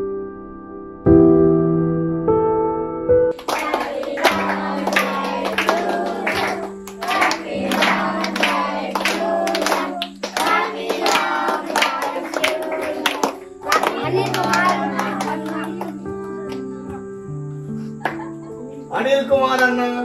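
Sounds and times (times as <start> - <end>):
hands clapping a beat: 3.3 - 17.0, 18.0 - 18.3
children singing: 3.4 - 16.2
held musical tone: 3.6 - 17.6.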